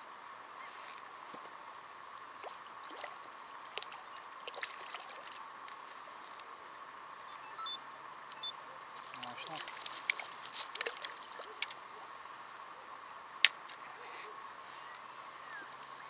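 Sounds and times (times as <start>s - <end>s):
water lapping and trickling: 2.2s - 6.4s, 8.9s - 12.2s
small water splashes: 2.4s - 6.0s, 9.0s - 12.0s.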